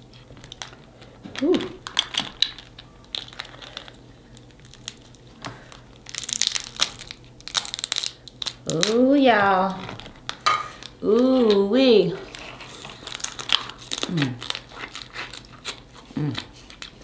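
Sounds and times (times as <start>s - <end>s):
crab shells cracking: 0.4s - 9.0s, 12.3s - 17.0s.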